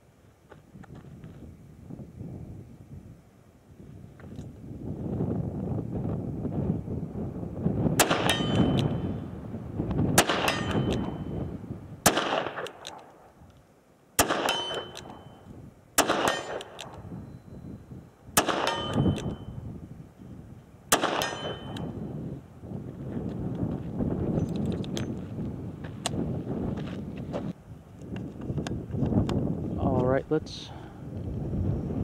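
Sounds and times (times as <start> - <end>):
steel target ringing: 8.0 - 9.1, 10.2 - 11.5, 14.2 - 15.5, 16.1 - 17.5, 18.4 - 19.6, 20.9 - 22.1.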